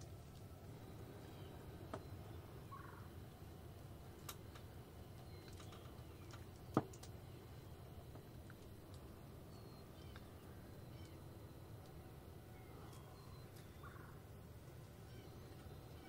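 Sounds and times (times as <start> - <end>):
low outdoor rumble: 0.0 - 16.0
distant turkey calling: 1.2 - 3.2, 12.5 - 14.3.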